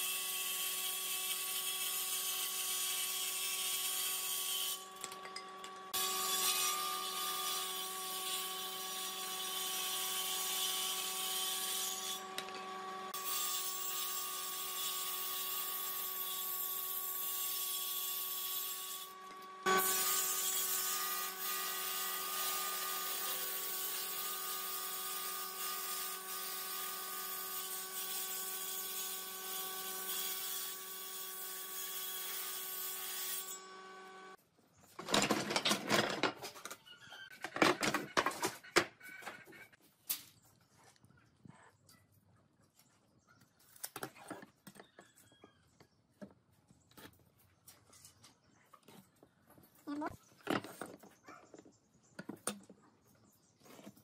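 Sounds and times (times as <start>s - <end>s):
table saw motor whine: 12.0s - 13.6s, 33.5s - 34.4s.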